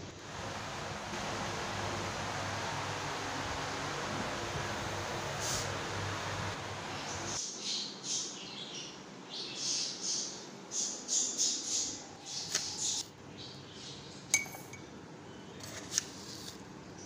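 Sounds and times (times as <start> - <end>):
metal spoon tapping ceramic cup: 14.4 - 14.8.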